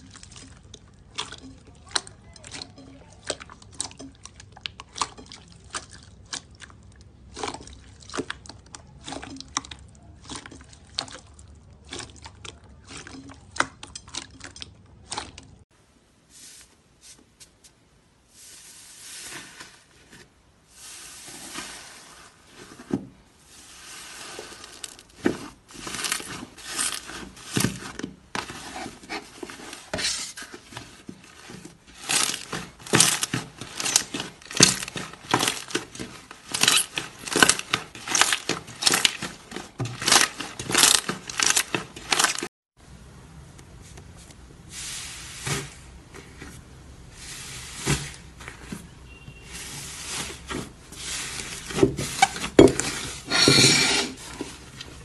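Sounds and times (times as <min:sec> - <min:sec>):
hands squishing slime: 0:00.0 - 0:15.6, 0:23.5 - 0:42.5.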